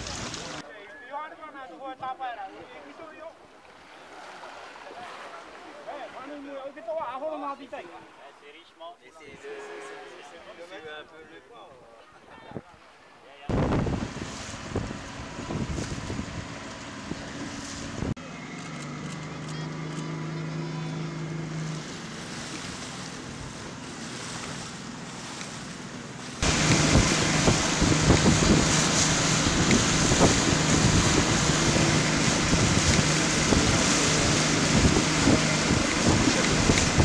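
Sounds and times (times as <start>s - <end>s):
boat motor humming: 0.0s - 0.6s, 13.5s - 37.0s
water rushing past boat: 0.0s - 0.7s, 1.6s - 10.7s, 12.5s - 37.0s
wind buffeting microphone: 13.5s - 18.2s, 26.4s - 37.0s.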